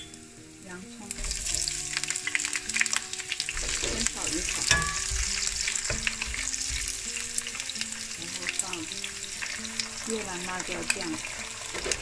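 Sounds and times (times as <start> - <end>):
food sizzling in hot oil: 0.0 - 12.0
wooden spatula scraping pan: 10.9 - 12.0.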